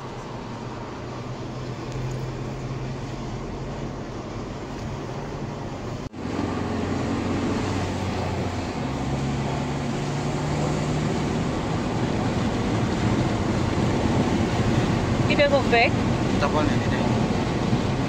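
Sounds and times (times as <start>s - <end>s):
engine and tyres rumbling on road: 0.0s - 18.0s
low engine hum: 0.0s - 18.0s.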